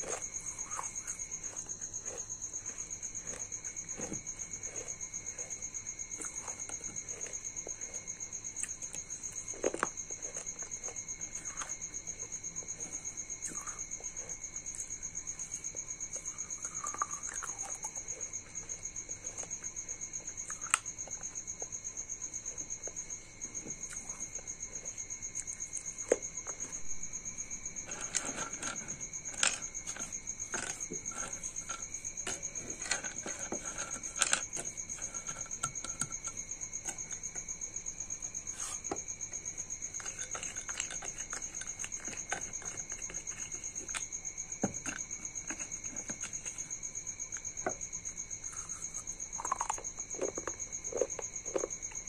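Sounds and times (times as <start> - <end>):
clicks and crackles of crumbling pencil: 0.0 - 14.9, 25.3 - 37.6, 38.2 - 47.8, 48.4 - 52.0.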